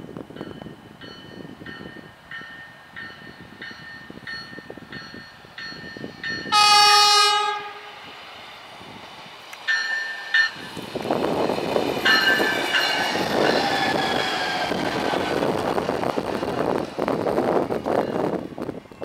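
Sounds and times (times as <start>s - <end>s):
train rumbling past: 0.0s - 19.0s
train horn blast: 6.5s - 8.0s.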